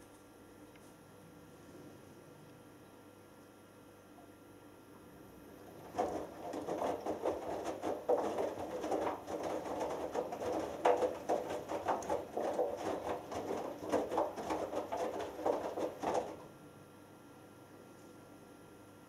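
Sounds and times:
wet laundry sloshing: 0:05.6 - 0:16.5
washing machine drum turning: 0:05.7 - 0:16.5.

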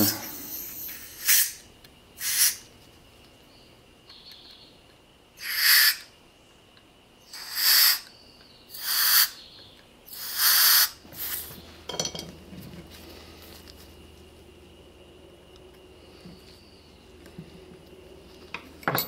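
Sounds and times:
compressed air bursts hissing: 0:00.0 - 0:01.6, 0:02.2 - 0:02.6, 0:05.4 - 0:06.0, 0:07.3 - 0:08.0, 0:08.7 - 0:09.4, 0:10.1 - 0:11.6.

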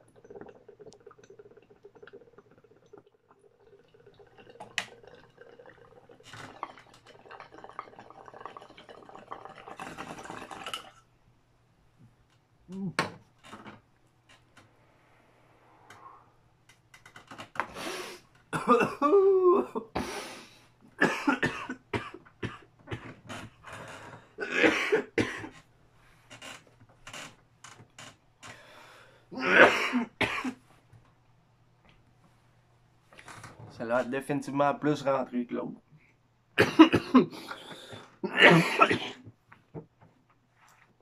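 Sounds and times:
man coughing hard: 0:18.6 - 0:19.9, 0:21.0 - 0:22.6, 0:24.4 - 0:25.5, 0:29.4 - 0:30.6, 0:36.6 - 0:37.5, 0:38.2 - 0:39.2.

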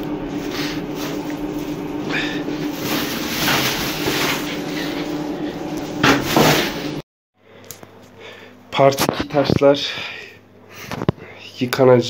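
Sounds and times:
steady background hum: 0:00.0 - 0:12.0
plastic bag of stones rustling: 0:02.6 - 0:05.1.

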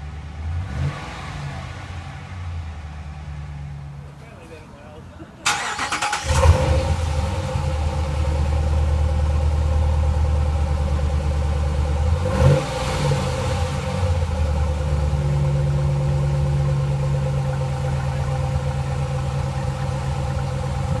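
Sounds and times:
truck engine revving and idling: 0:00.0 - 0:04.1, 0:05.5 - 0:21.0.

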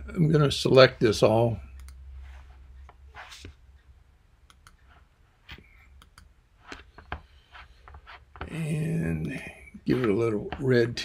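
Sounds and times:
faint low hum: 0:00.0 - 0:11.0
soft computer mouse clicks: 0:01.7 - 0:02.0, 0:02.8 - 0:04.9, 0:05.5 - 0:06.9.

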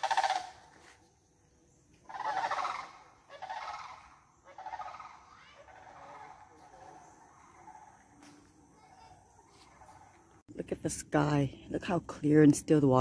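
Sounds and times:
bird rattling calls: 0:00.0 - 0:00.6, 0:02.1 - 0:06.5.

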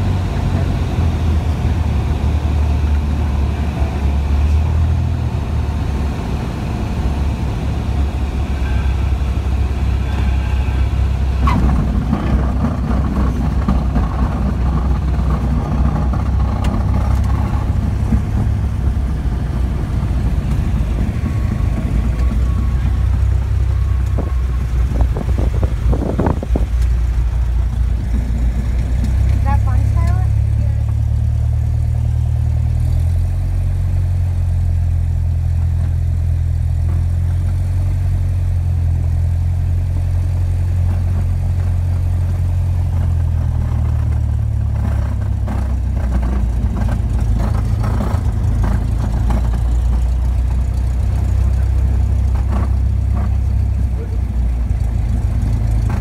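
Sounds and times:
plane engine drone in cabin: 0:00.0 - 0:56.0.

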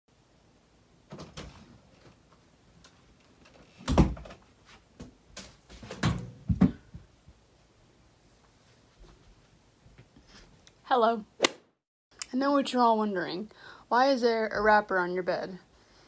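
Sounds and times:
knocks and thumps: 0:05.0 - 0:07.1.

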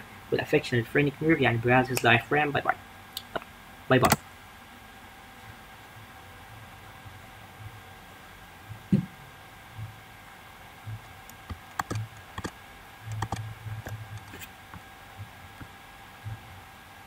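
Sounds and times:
faint steady hum: 0:00.0 - 0:17.0
keyboard and mouse clicks: 0:04.0 - 0:04.2, 0:10.9 - 0:14.8.

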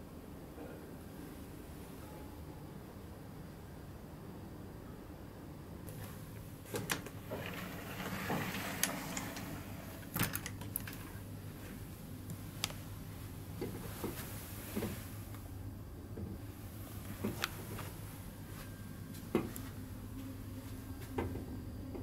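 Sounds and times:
steady low hum: 0:00.0 - 0:22.0
folding door rustling: 0:05.9 - 0:11.2.

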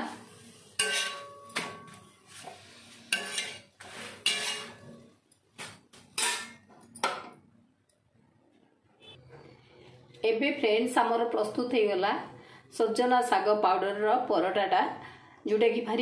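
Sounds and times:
spatula scraping on a griddle: 0:00.2 - 0:05.0, 0:06.1 - 0:06.6.

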